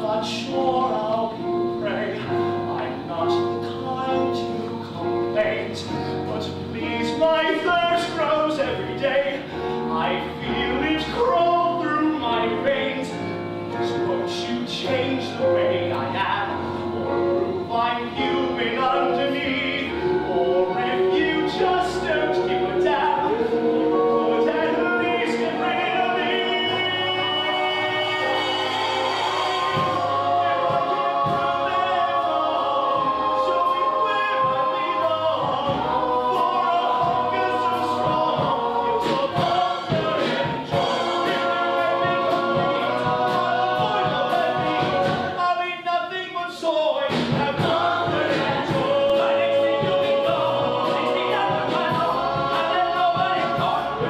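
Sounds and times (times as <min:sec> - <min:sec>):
man singing: 0:00.0 - 0:16.6, 0:17.6 - 0:28.5, 0:29.5 - 0:54.0
musical accompaniment: 0:00.0 - 0:54.0
choir-like vocals: 0:13.8 - 0:45.8, 0:47.0 - 0:54.0.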